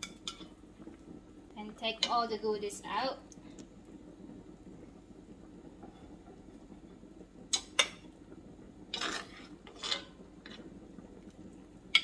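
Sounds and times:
spoon scraping pot: 8.9 - 10.7.

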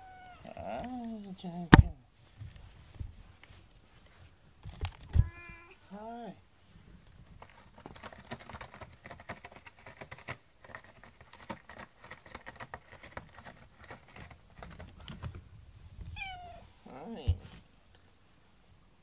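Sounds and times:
cat meowing: 0.0 - 0.6, 5.2 - 5.8, 16.2 - 16.7
cat scratching cardboard: 7.1 - 15.5.

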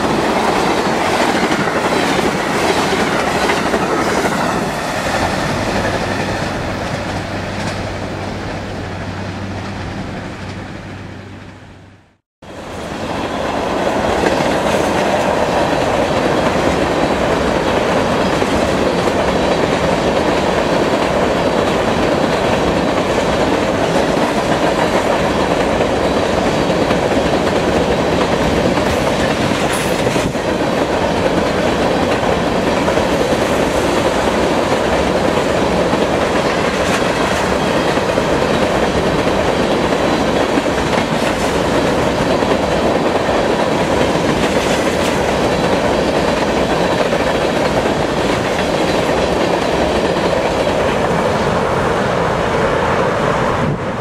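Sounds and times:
train wheels clattering over rail joints: 14.1 - 51.5.

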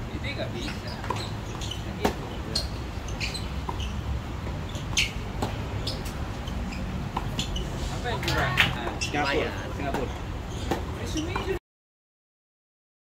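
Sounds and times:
racquets striking tennis ball: 0.6 - 7.6.

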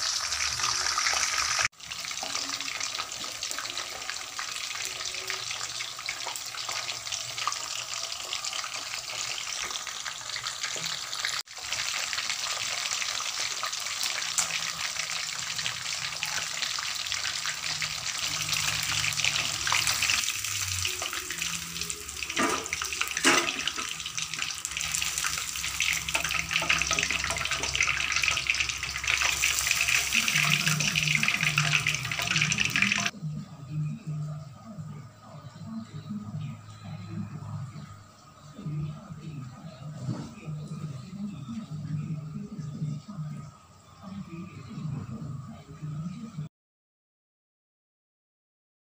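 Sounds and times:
chicken sizzling in hot oil: 0.0 - 33.2.

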